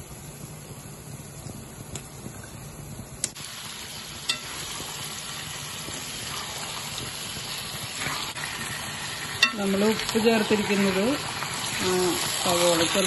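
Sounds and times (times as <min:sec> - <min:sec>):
onions sizzling in oil: 0:03.3 - 0:13.0.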